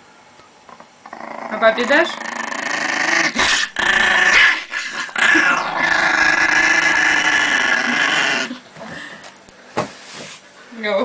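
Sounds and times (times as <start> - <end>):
small dog growling: 0.7 - 8.7.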